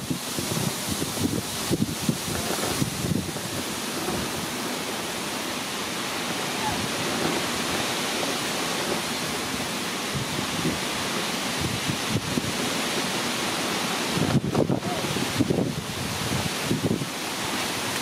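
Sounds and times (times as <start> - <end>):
steady rushing outdoor noise: 0.0 - 18.0
wind buffeting microphone: 0.0 - 18.0.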